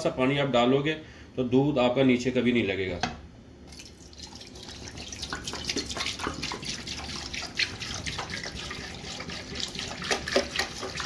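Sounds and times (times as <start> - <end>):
milk pouring into metal pot: 3.7 - 11.0.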